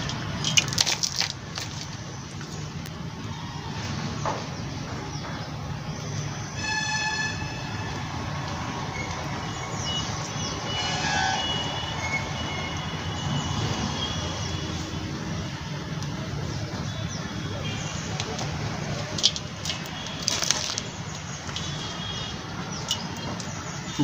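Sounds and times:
distant horn: 6.4s - 15.2s.

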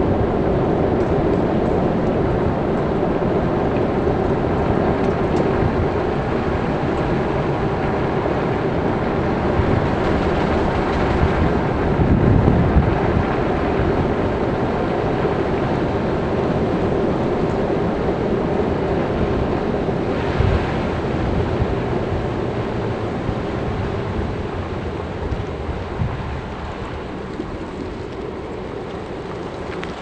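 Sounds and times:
car engine and tyre noise: 0.0s - 30.0s
low rumble: 0.0s - 30.0s.

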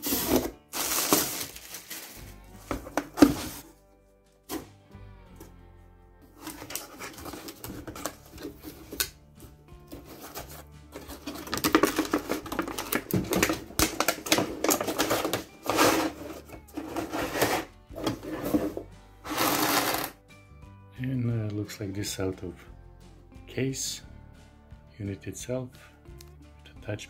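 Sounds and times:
packaging rustling and crinkling: 0.0s - 3.7s, 6.4s - 9.0s, 9.9s - 20.0s.

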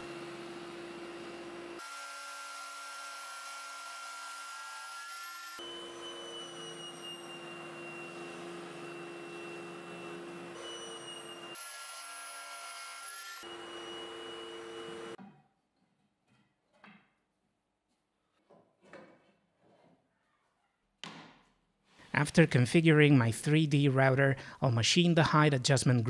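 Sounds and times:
table saw whining: 0.0s - 15.2s.

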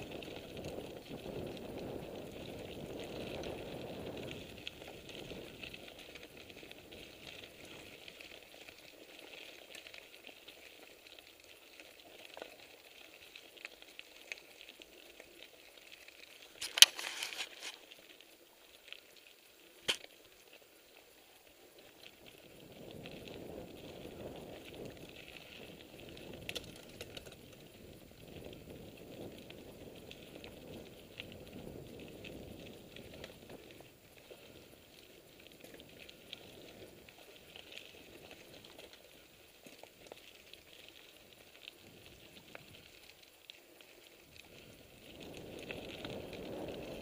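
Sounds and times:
bike tyres crackling on gravel: 0.0s - 47.0s
bike rattling over bumps: 22.7s - 34.7s.

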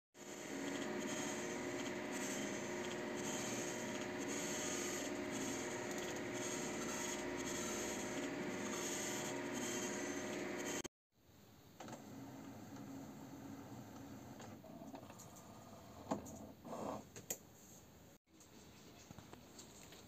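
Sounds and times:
laser printer whirring: 0.2s - 10.9s.

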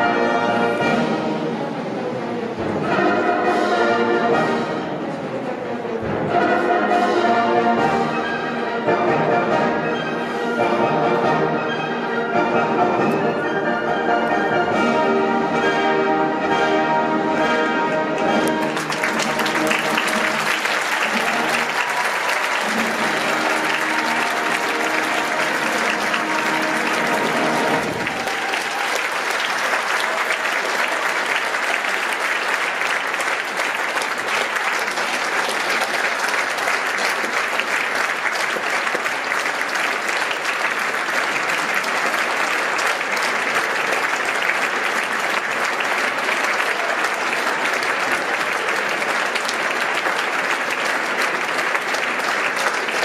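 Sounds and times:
orchestra holding final chord: 17.0s - 29.2s
audience applauding: 18.0s - 53.0s.

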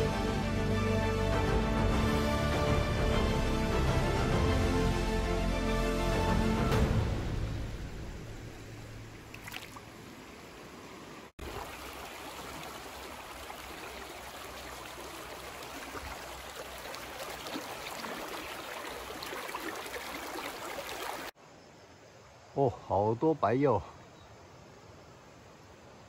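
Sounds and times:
creek water flowing over rocks: 8.4s - 21.4s.

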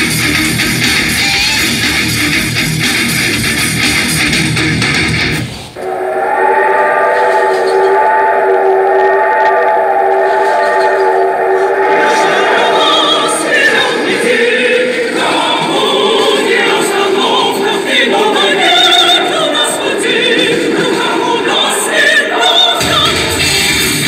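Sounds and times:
choir singing: 5.8s - 23.8s.

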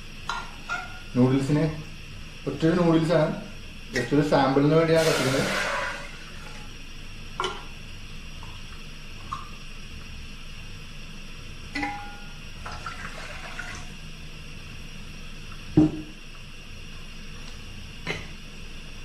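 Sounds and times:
gas burner hissing: 1.4s - 7.2s.

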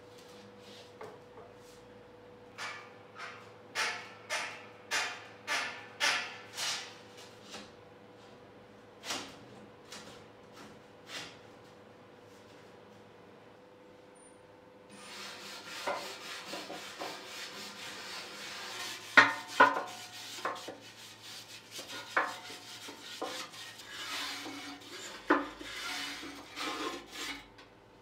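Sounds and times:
scraping and brushing soot: 15.0s - 27.5s.

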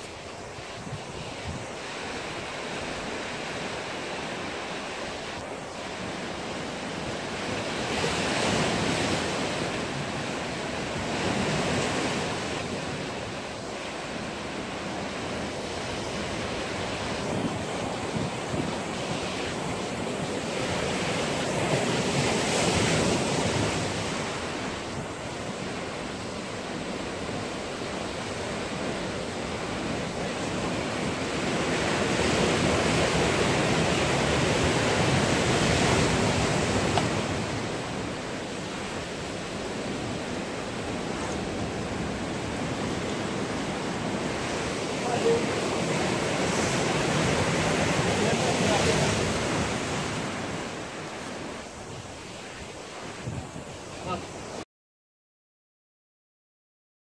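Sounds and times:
ocean surf on rocky shore: 0.0s - 54.6s
wind on microphone: 0.0s - 54.6s.

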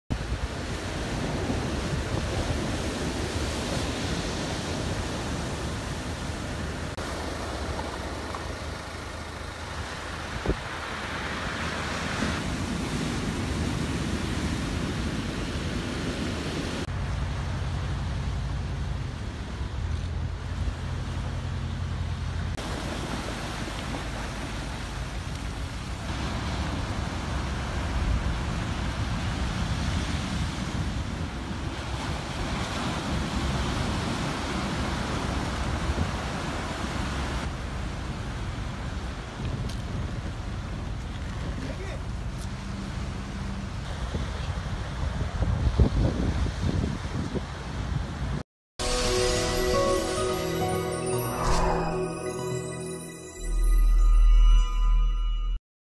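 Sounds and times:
wind rumbling on microphone: 0.1s - 8.7s, 43.6s - 48.4s
heavy surf crashing: 0.1s - 16.9s, 22.6s - 37.5s.

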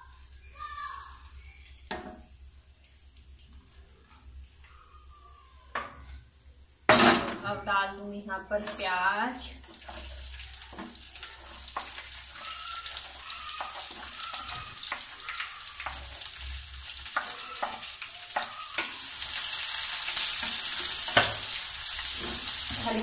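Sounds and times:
onions sizzling in oil: 8.6s - 23.0s.

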